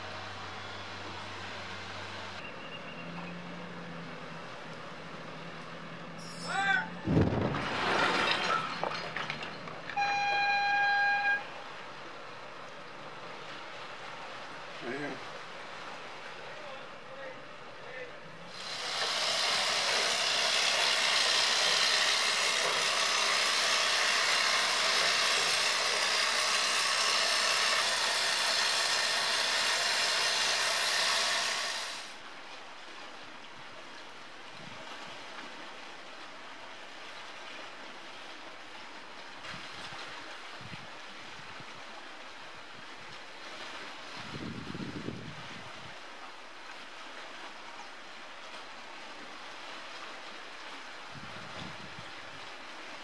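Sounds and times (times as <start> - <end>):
faint outdoor background: 0.0 - 24.5
loud rushing hiss: 18.5 - 32.2.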